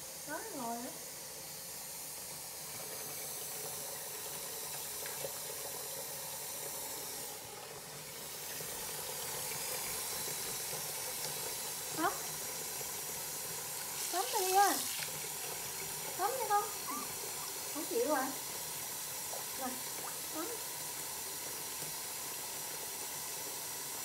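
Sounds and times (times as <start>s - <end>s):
faucet running into sink: 0.0s - 24.0s.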